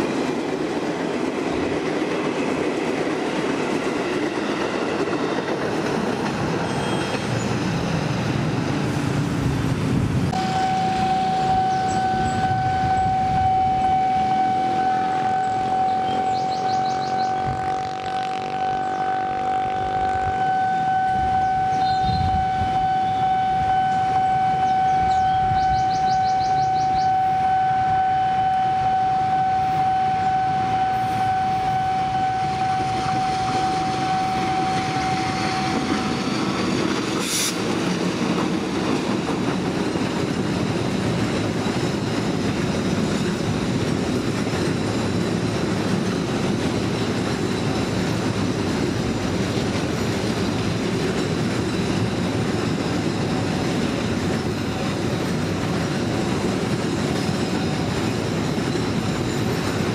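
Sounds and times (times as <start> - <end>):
train wheels rumbling on rails: 0.0 - 59.9
steady high tone: 10.3 - 37.2.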